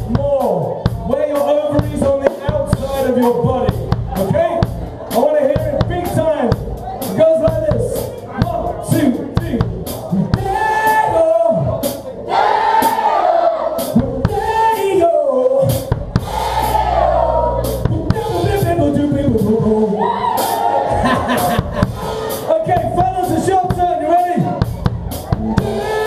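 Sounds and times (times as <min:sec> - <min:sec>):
drum kit hits: 0:00.0 - 0:05.0, 0:15.6 - 0:19.7, 0:20.4 - 0:26.0
live rock band playing: 0:00.0 - 0:13.0, 0:15.6 - 0:26.0.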